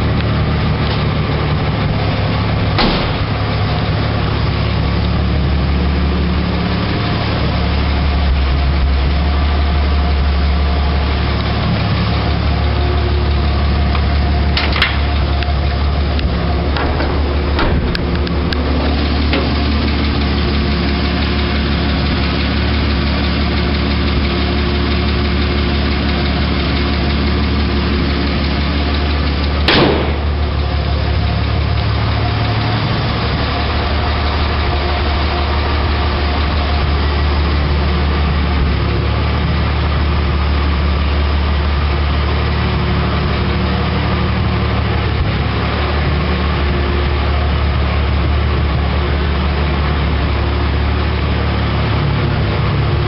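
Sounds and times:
truck engine idling: 0:00.0 - 0:53.0
sharp knock: 0:02.8 - 0:03.3, 0:29.7 - 0:30.4.

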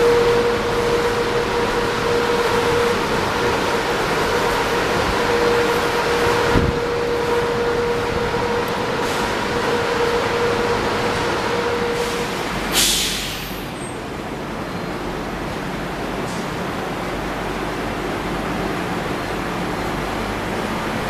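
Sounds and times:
train mechanical hum: 0:00.0 - 0:21.0
air release hiss: 0:12.0 - 0:13.8.

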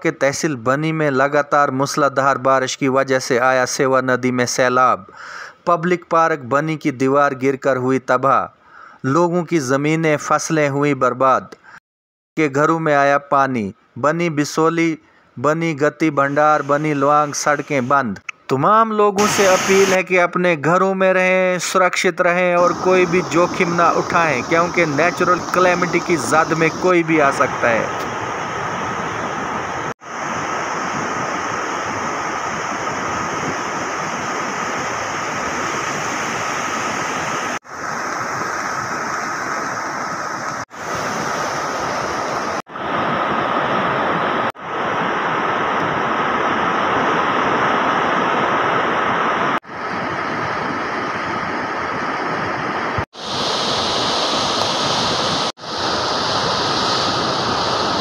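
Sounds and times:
river water rushing: 0:22.6 - 0:58.0.

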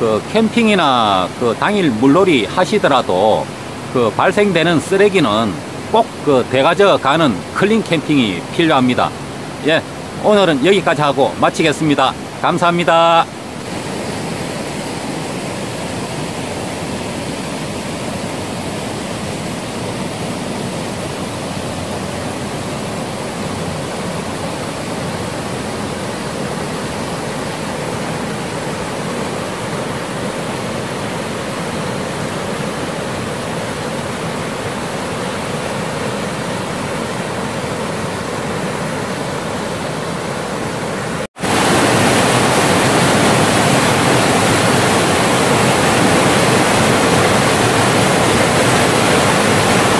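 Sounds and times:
stream rushing over rocks: 0:00.0 - 0:49.9.

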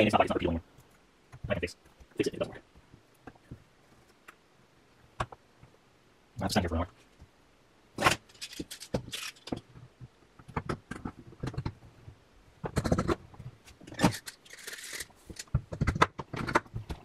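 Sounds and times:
metal strips clicking and knocking: 0:08.2 - 0:09.7.

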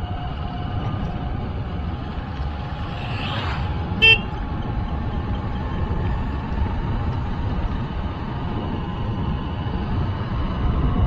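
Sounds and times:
road and wind rumble: 0:00.0 - 0:11.0
vehicle horn beep: 0:03.9 - 0:04.4.

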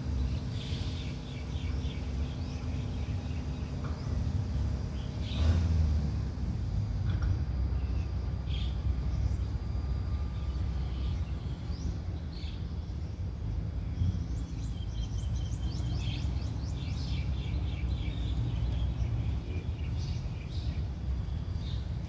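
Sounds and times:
low engine rumble: 0:00.0 - 0:22.0
birds chirping: 0:10.4 - 0:22.0.

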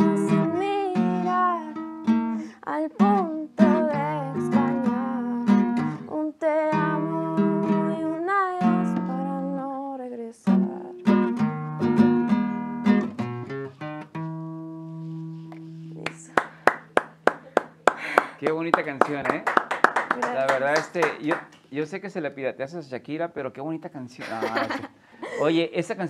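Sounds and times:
strummed acoustic guitar: 0:00.0 - 0:06.1, 0:06.7 - 0:09.7, 0:10.4 - 0:17.8
woman singing: 0:00.0 - 0:11.2.

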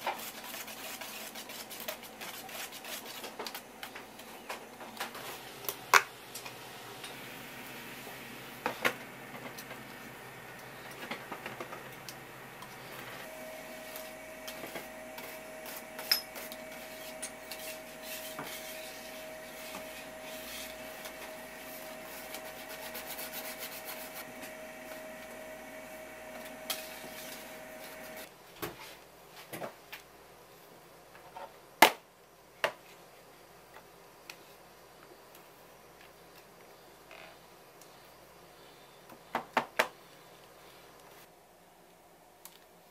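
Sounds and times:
whisk scraping metal pot: 0:00.0 - 0:03.4
steady hum with tone: 0:02.8 - 0:28.3.

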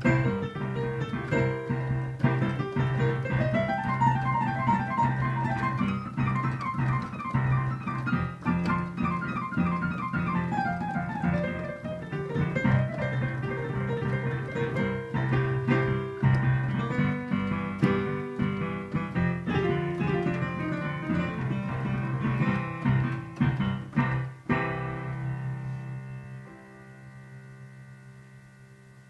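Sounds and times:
blues piano playing: 0:00.0 - 0:29.0.

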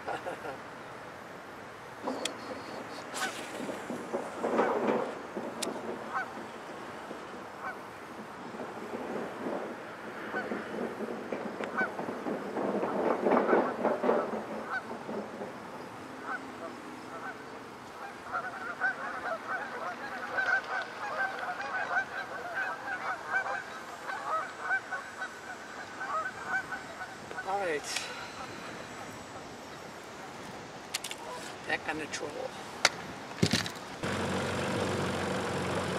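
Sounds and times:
geese honking: 0:06.0 - 0:06.5, 0:07.6 - 0:07.8, 0:11.7 - 0:12.0, 0:16.2 - 0:29.5.

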